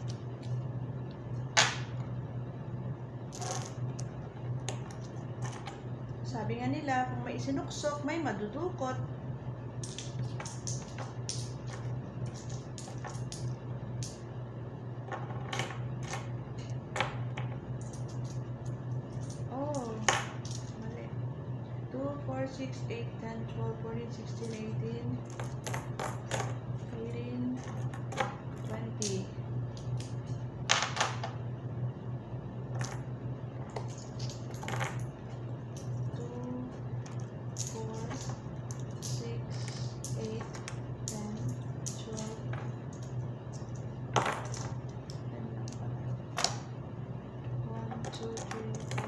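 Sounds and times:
steady low hum: 0:00.0 - 0:49.0
metal coins clinking: 0:03.3 - 0:05.8, 0:09.8 - 0:14.2, 0:17.8 - 0:20.8, 0:33.7 - 0:36.2, 0:37.0 - 0:45.2.

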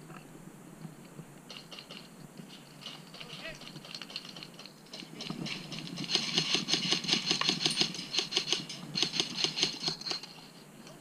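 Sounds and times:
airsoft rifle shots: 0:05.5 - 0:10.2.

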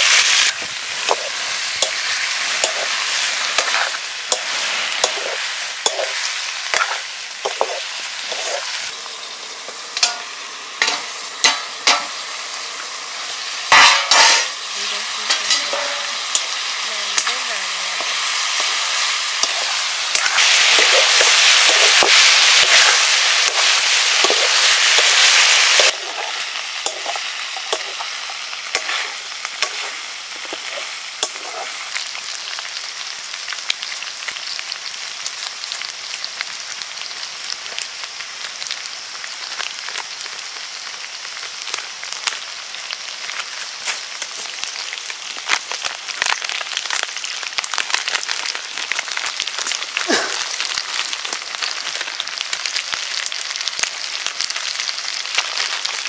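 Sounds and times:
food sizzling in a pan: 0:00.0 - 0:56.0.

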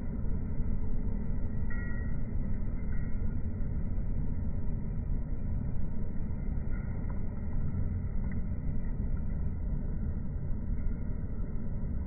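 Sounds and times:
low rumbling noise: 0:00.0 - 0:12.0.

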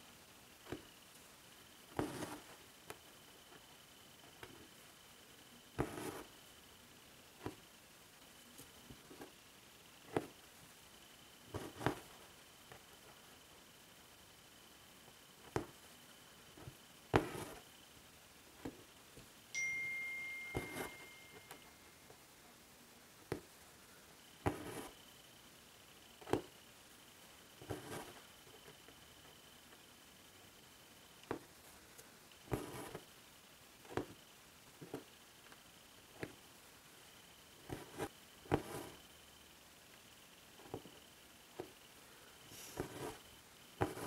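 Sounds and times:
thread rasping through cloth: 0:01.9 - 0:04.7, 0:05.8 - 0:06.3, 0:11.5 - 0:13.2, 0:16.6 - 0:17.7, 0:24.4 - 0:25.0, 0:27.6 - 0:29.0, 0:32.5 - 0:33.1, 0:37.6 - 0:39.0, 0:42.6 - 0:44.0
needle clicking through fabric: 0:11.5 - 0:13.2, 0:16.6 - 0:17.6
ringing ding: 0:19.6 - 0:21.8.

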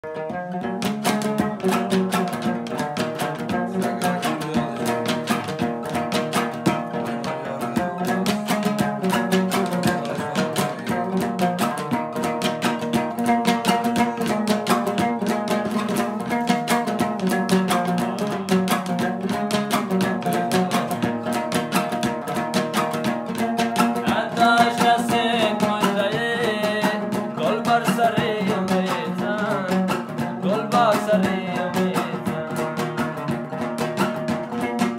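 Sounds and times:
lute strummed fast: 0:00.0 - 0:34.9
man's voice: 0:03.6 - 0:06.1, 0:06.8 - 0:11.8, 0:23.9 - 0:33.0.

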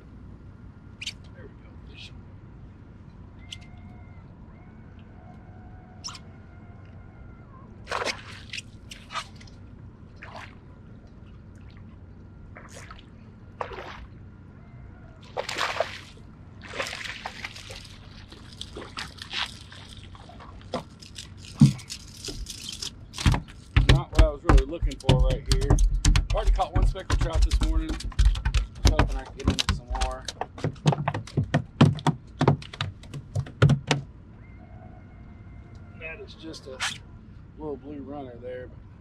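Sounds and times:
water splashing: 0:07.9 - 0:10.7, 0:11.5 - 0:14.1, 0:15.2 - 0:22.3.

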